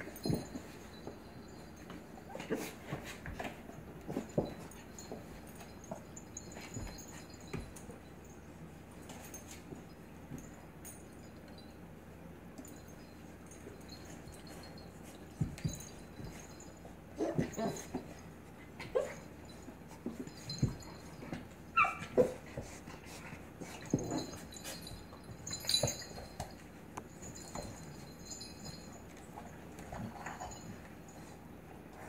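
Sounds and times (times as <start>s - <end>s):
dogs scuffling on hardwood floor: 0.0s - 10.6s, 12.6s - 32.0s
dog high yelp: 21.7s - 22.4s
puppy whimpers and yips: 21.7s - 22.4s.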